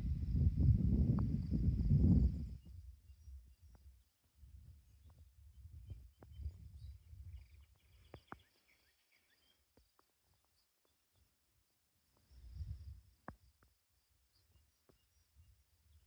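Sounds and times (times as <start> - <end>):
wind gusting on microphone: 0.0 - 3.4
bird chirps: 4.9 - 11.3.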